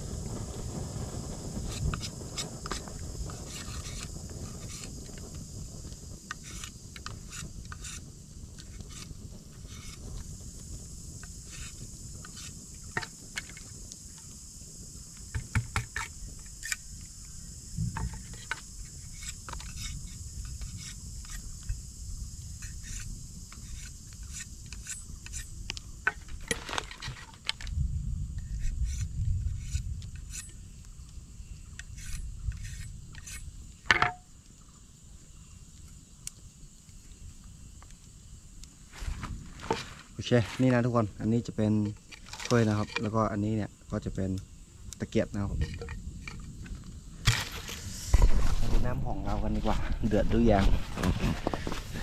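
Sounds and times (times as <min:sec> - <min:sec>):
night insects droning: 0:00.0 - 0:52.0
knife scraping bamboo: 0:01.6 - 0:04.9, 0:06.3 - 0:08.0, 0:08.6 - 0:10.0, 0:11.5 - 0:13.5, 0:18.1 - 0:21.4, 0:22.6 - 0:25.5, 0:28.4 - 0:30.6, 0:31.8 - 0:33.5.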